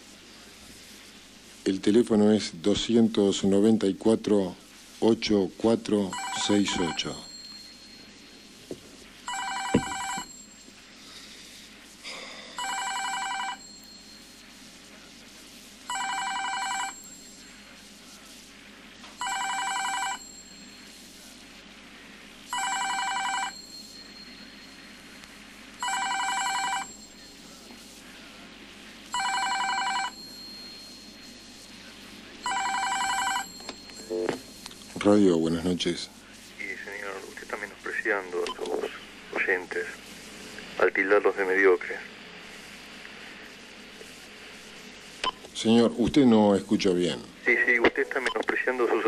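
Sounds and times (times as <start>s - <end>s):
tape hiss: 0.0s - 49.0s
telephone ringing with warbling trill: 6.2s - 8.3s, 9.3s - 10.7s, 22.5s - 24.8s, 25.8s - 27.5s, 29.2s - 31.4s, 32.4s - 34.3s.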